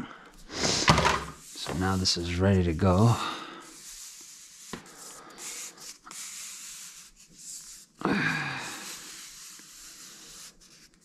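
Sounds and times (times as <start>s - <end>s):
person sighing: 8.0s - 9.0s.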